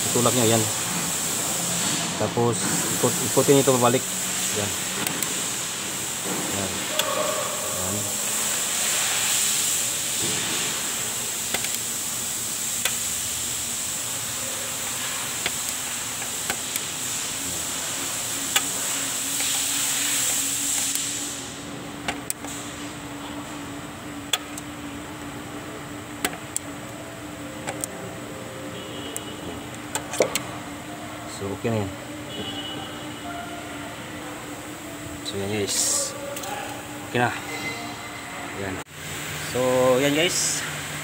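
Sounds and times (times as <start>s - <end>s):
steady hiss: 0.0s - 23.2s, 39.0s - 41.0s
tool clicking on brake adjuster: 11.5s - 11.8s, 15.4s - 16.9s, 27.6s - 27.9s, 29.9s - 30.4s.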